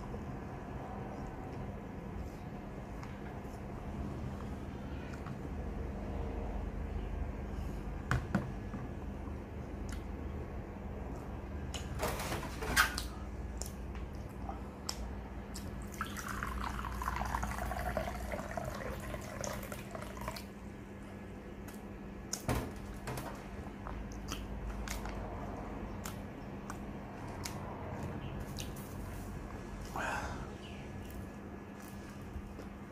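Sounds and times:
water pouring into glass bowl: 15.9 - 20.4.

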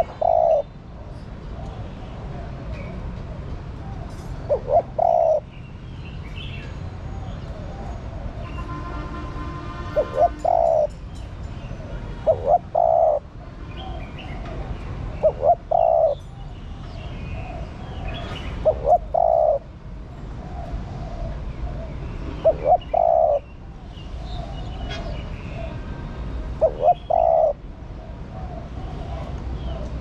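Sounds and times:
dove cooing: 0.0 - 0.7, 3.8 - 5.5, 10.0 - 11.0, 11.8 - 14.4, 15.1 - 16.2, 17.4 - 19.7, 20.4 - 23.5, 26.6 - 29.8
faint cooing of other doves: 0.0 - 5.5, 9.9 - 11.0, 11.7 - 19.7, 20.3 - 25.8, 26.6 - 30.0.

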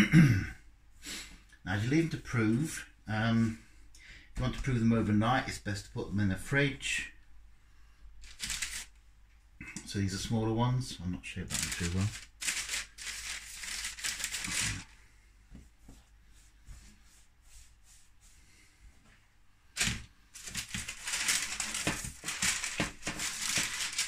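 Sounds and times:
dough on paper rustling and crinkling: 8.2 - 9.0, 11.4 - 24.0.

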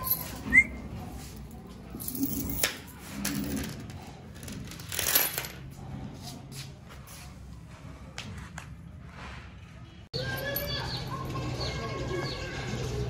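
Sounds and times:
chain leash clinking: 0.0 - 5.9.

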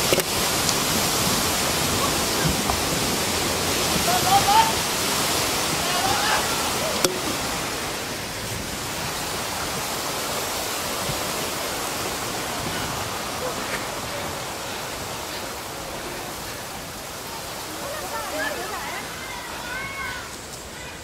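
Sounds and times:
steady rushing noise: 0.0 - 21.0.

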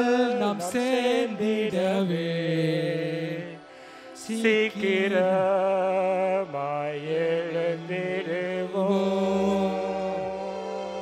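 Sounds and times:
men singing a hymn: 0.0 - 11.0.

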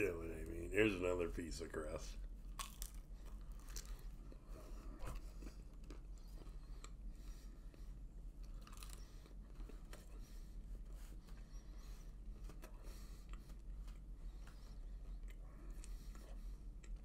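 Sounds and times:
man chewing close to microphone: 2.2 - 17.0.

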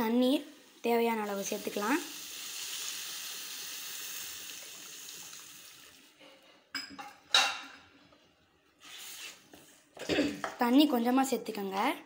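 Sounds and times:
water hissing in hot pan: 0.0 - 6.2.

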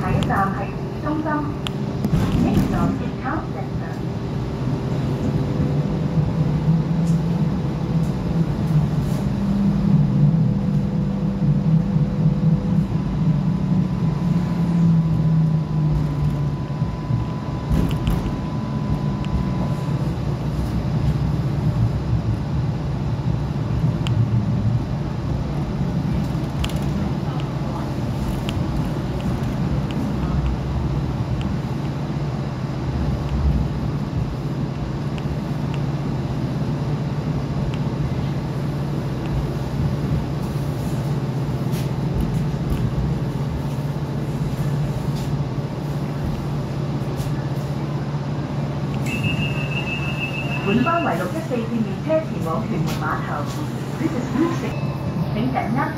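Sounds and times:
faint steady whine: 0.0 - 41.6, 42.2 - 55.9
tram rumble: 0.0 - 55.9.

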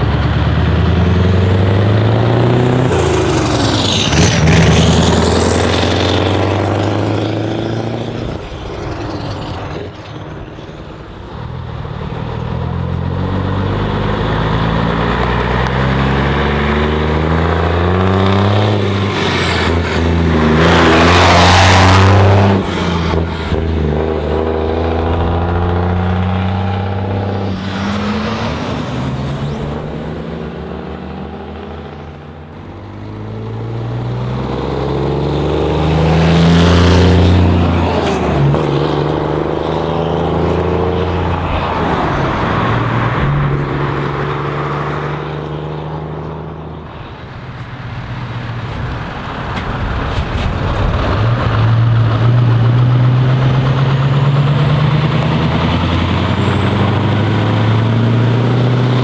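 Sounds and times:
truck engines revving: 0.0 - 59.0.

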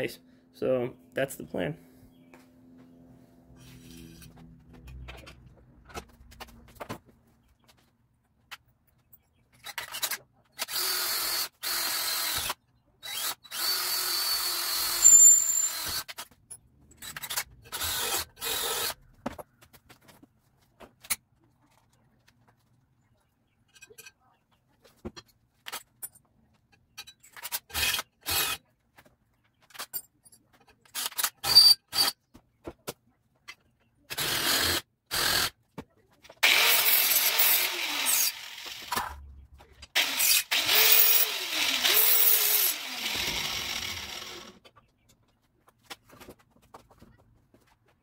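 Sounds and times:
power drill drilling into metal: 10.6 - 16.1, 17.7 - 19.0, 36.4 - 39.0, 40.0 - 44.6.

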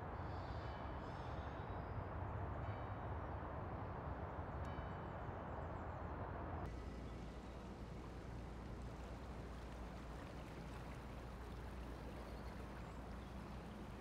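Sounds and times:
boat engine low hum: 5.6 - 14.0.

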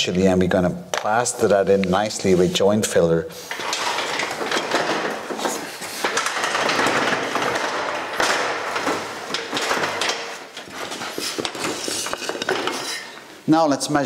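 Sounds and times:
plank and scaffold clattering: 3.5 - 13.3.

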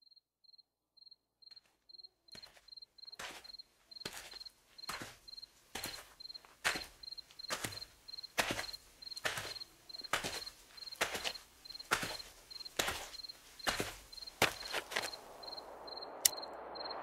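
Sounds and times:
high insect-like chirp: 0.0 - 17.0.

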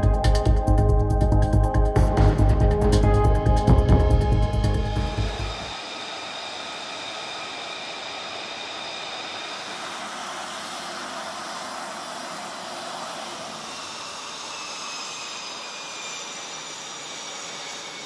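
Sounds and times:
jet engine running: 0.0 - 18.0.

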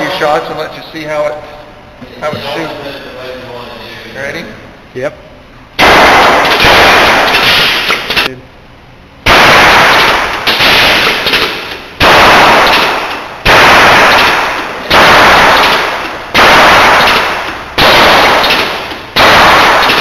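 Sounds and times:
gun firing loud single shots: 5.8 - 8.3, 9.3 - 20.0.

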